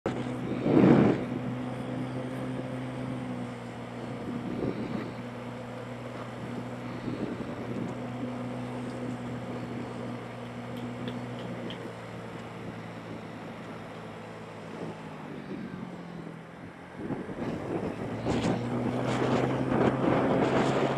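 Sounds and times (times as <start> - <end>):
wind noise on microphone: 0.1 - 5.5, 6.3 - 8.5, 16.6 - 20.9
motorbike engine running: 0.1 - 20.9.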